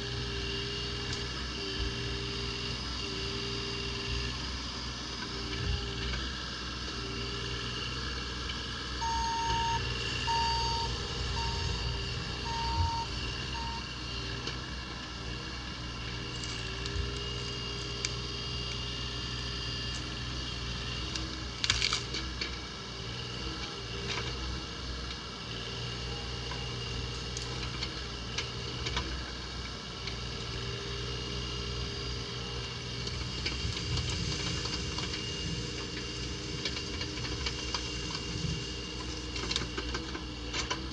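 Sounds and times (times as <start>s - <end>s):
excavator diesel engine running: 0.0s - 40.9s
short beeps: 9.0s - 13.8s.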